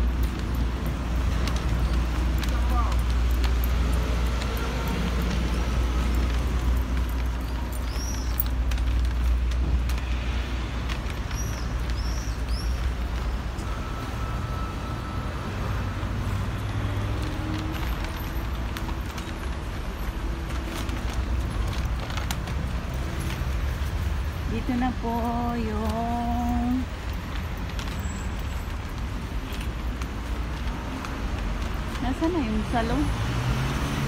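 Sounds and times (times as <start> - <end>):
low traffic rumble: 0.0 - 34.0.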